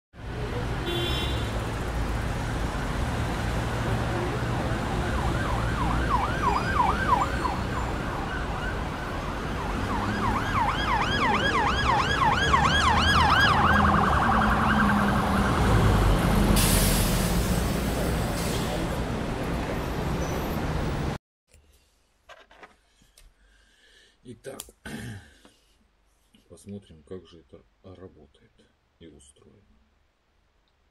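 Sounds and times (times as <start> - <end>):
low traffic rumble: 0.2 - 21.2
siren wailing: 3.8 - 16.5.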